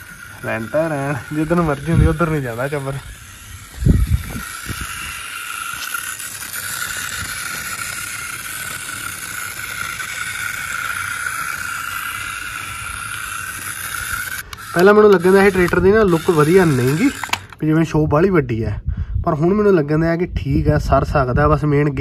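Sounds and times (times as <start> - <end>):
toy tractor motor whine: 0.0 - 17.7.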